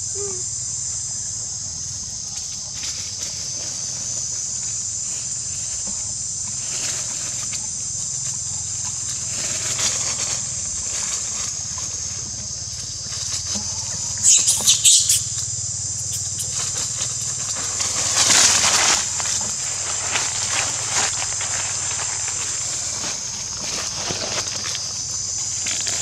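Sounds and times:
steady high hiss: 0:00.0 - 0:26.0
dry leaves rustling: 0:01.3 - 0:26.0
shrill monkey cries: 0:14.2 - 0:15.4.

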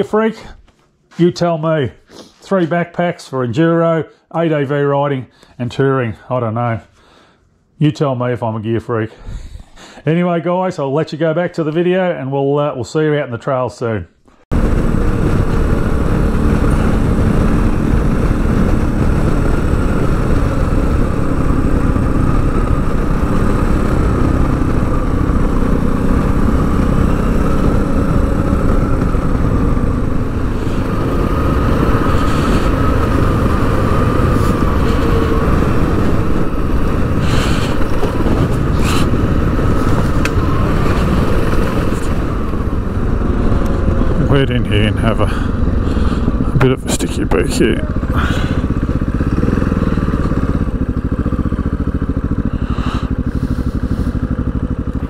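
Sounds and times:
motorcycle engine running: 0:14.5 - 0:55.0.

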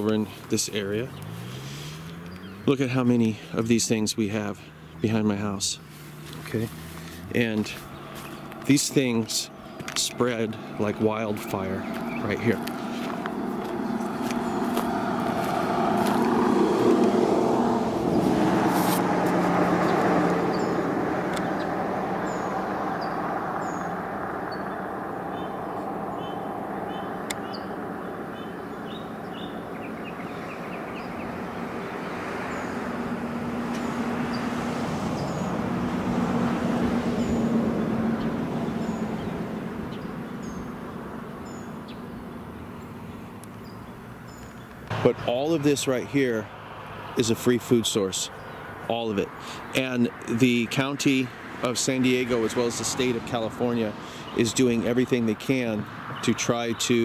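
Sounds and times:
road traffic rumble: 0:00.0 - 0:57.0
bird chirps: 0:00.8 - 0:03.5, 0:07.8 - 0:16.3, 0:19.8 - 0:32.9, 0:37.2 - 0:45.4.

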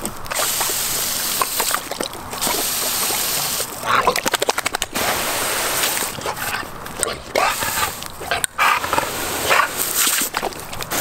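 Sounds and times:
dog snapping at water: 0:00.0 - 0:11.0
dog snorts: 0:00.3 - 0:11.0
hose nozzle hissing: 0:05.0 - 0:06.5, 0:07.4 - 0:11.0.

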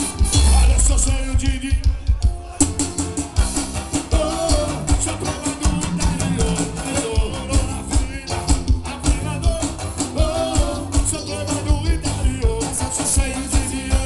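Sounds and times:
band playing through loudspeakers: 0:00.0 - 0:14.0
guitar: 0:00.0 - 0:14.0
heavy bass and drum beat: 0:00.0 - 0:14.0
person singing: 0:03.9 - 0:14.0.

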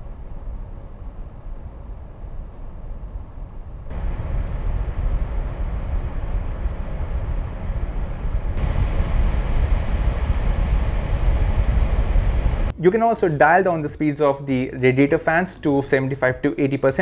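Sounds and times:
fans running with rushing air: 0:00.0 - 0:12.7.

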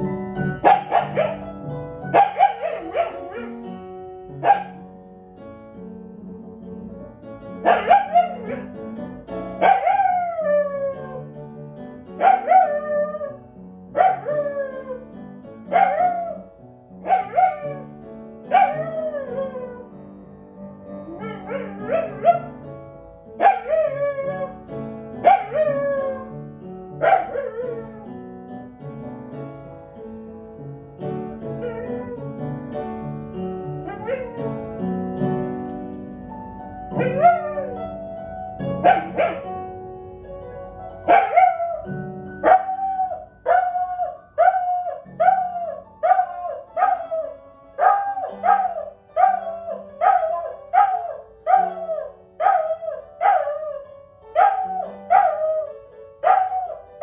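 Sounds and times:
music: 0:00.0 - 0:57.0
dog howling: 0:07.7 - 0:08.7, 0:09.6 - 0:11.3, 0:12.2 - 0:13.4, 0:14.0 - 0:15.0, 0:15.8 - 0:16.5, 0:17.1 - 0:17.9, 0:18.5 - 0:19.9, 0:21.1 - 0:22.5, 0:23.4 - 0:24.6, 0:25.3 - 0:26.3, 0:27.0 - 0:28.1, 0:31.6 - 0:32.3, 0:33.9 - 0:34.6, 0:37.0 - 0:38.0, 0:41.1 - 0:53.8, 0:54.4 - 0:56.9.

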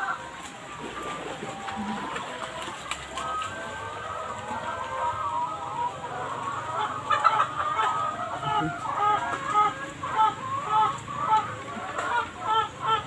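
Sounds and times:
chickens clucking: 0:00.0 - 0:13.0.

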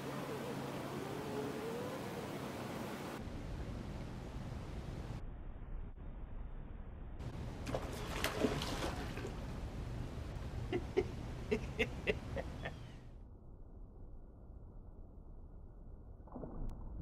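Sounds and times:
fish splashing out of water: 0:07.6 - 0:09.6
man laughing: 0:10.7 - 0:12.9.

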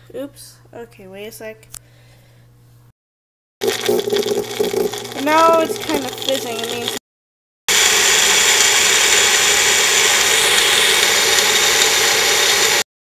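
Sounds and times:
blender motor whirring: 0:03.6 - 0:07.0, 0:07.7 - 0:12.9.

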